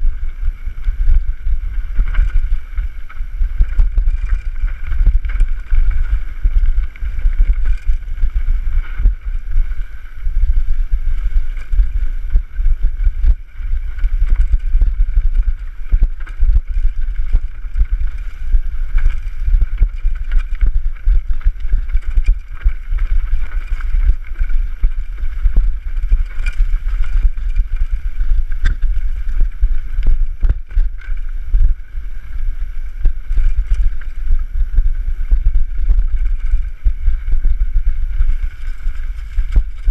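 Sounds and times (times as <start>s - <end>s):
wind buffeting microphone: 0.0s - 39.9s
bike clattering over bumps: 1.6s - 10.2s, 12.9s - 32.2s
tyres running on dirt: 11.2s - 39.9s.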